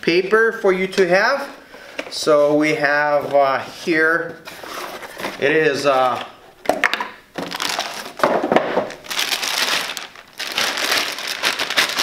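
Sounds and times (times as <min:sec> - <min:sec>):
plastic bag crinkling: 0:07.4 - 0:12.0.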